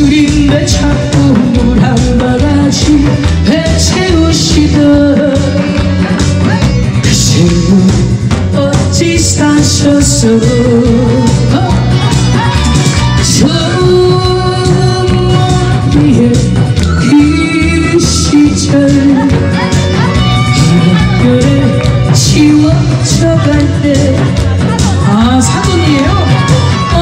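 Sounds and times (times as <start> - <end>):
amplified singing voice: 0.0 - 27.0
band backing track: 0.0 - 27.0.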